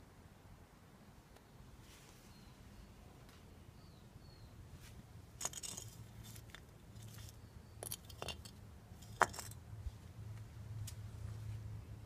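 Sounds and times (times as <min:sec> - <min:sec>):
light metallic clinks and jingles: 0:05.4 - 0:09.6.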